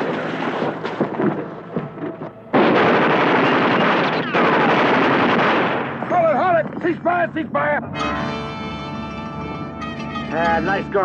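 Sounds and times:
gunfire: 0.0s - 6.1s.

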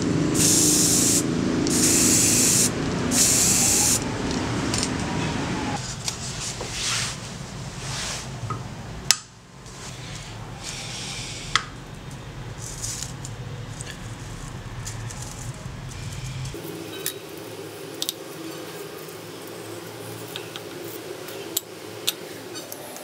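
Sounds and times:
aerosol spray can hissing: 0.4s - 4.0s.

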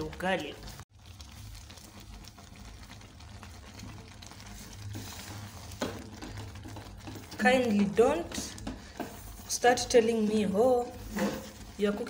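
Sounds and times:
wooden spoon scraping pot: 2.8s - 12.0s.

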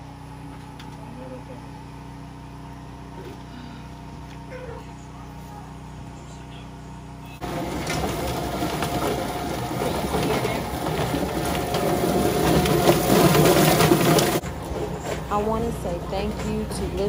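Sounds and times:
chicken plucker clattering: 7.4s - 15.4s.

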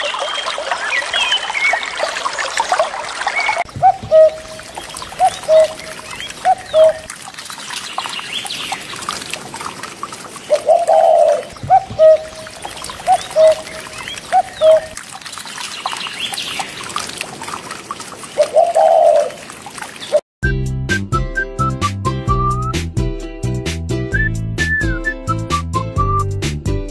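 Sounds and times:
trickle of running water: 0.0s - 20.2s.

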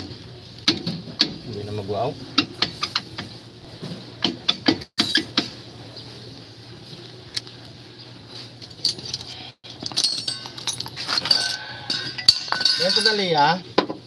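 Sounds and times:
metallic clicks knocks and scrapes: 2.4s - 3.3s.

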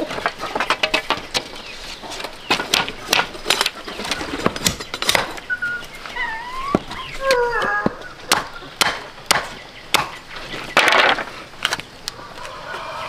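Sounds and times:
machete splitting bamboo: 8.3s - 10.2s.

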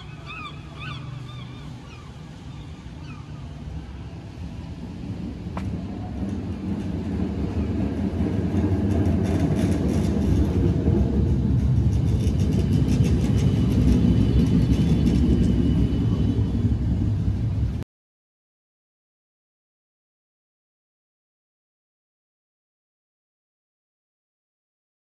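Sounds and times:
streetcar rumbling past: 0.0s - 17.8s.

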